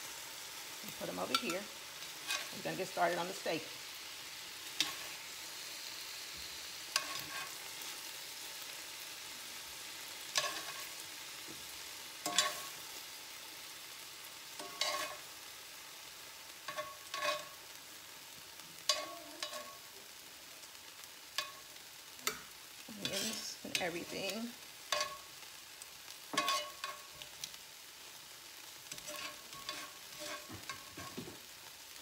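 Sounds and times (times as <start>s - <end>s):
meat sizzling in oil: 0.0s - 32.0s
metal tongs clinking: 12.2s - 12.8s, 18.9s - 19.9s, 24.9s - 25.2s, 26.4s - 27.2s.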